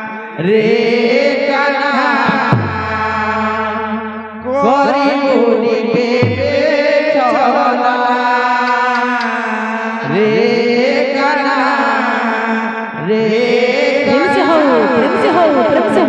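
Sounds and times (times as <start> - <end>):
barrel drum: 2.3 - 4.7, 6.0 - 7.3.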